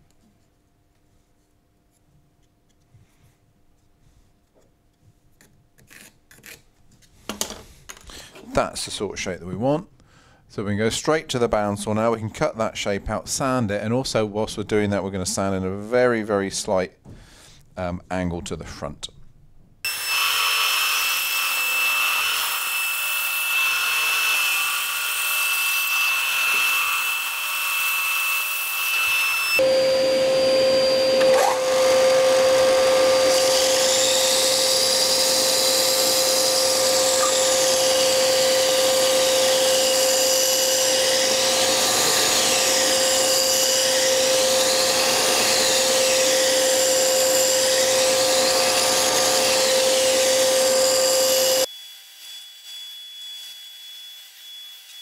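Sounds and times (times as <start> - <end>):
bandsaw cutting wood: 19.9 - 52.9
belt sander humming: 29.5 - 51.7.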